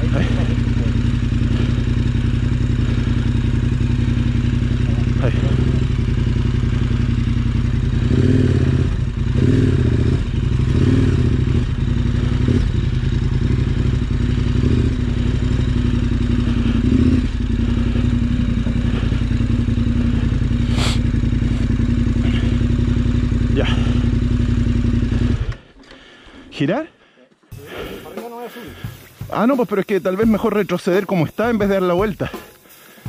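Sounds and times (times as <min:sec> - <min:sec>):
motorcycle throttle blips: 0:00.0 - 0:26.3
motorcycle engine idling: 0:00.0 - 0:33.0.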